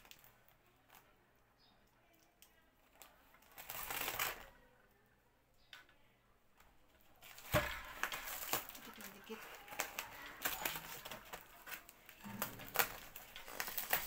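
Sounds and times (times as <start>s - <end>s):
parcel rustling and clicking: 6.6s - 14.0s
scissors cutting packing tape: 8.0s - 14.0s.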